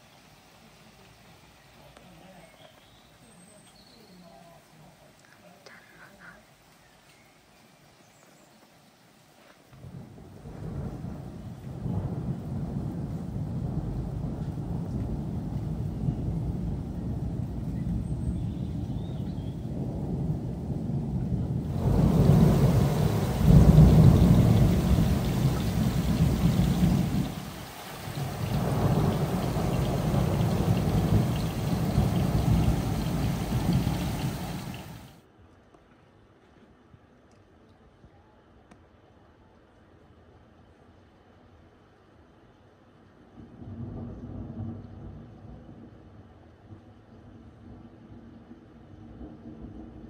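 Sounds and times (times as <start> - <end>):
rain falling: 0.0 - 35.2
rolling thunder rumble: 9.8 - 35.2, 43.4 - 46.3.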